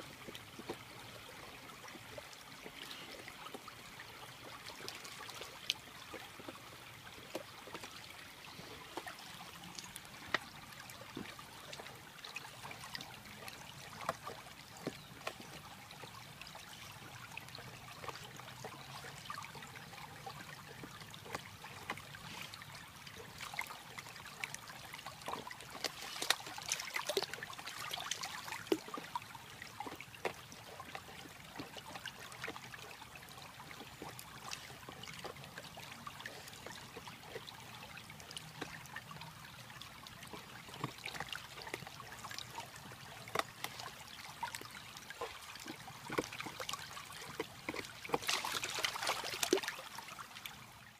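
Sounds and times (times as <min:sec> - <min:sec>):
stream trickling over rocks: 0:00.0 - 0:50.9
dog gnawing wood cracking: 0:40.2 - 0:48.8.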